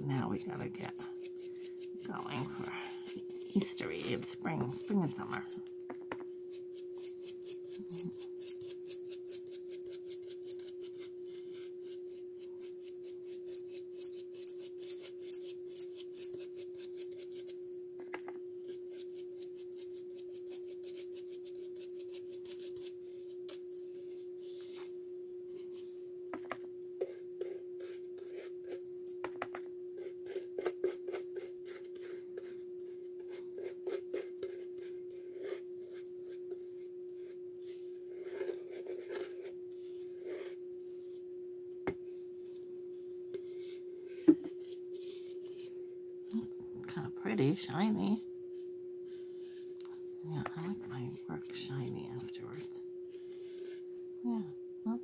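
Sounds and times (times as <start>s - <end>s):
paintbrush ticking and scratching: 0.0s - 5.7s, 6.5s - 17.8s, 18.6s - 24.2s, 27.0s - 29.4s, 30.0s - 40.6s
steady hum: 0.0s - 55.0s.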